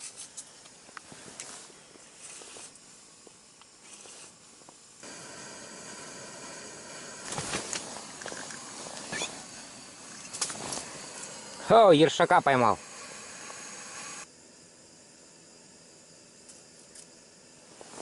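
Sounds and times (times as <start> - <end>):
clothing and gear rustling: 0.0 - 2.9, 7.2 - 11.4, 17.8 - 18.0
steady hiss: 0.0 - 18.0.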